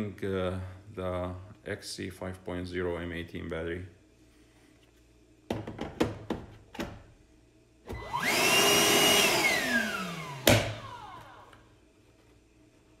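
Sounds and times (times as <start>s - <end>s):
vacuum motor whining: 7.9s - 11.7s.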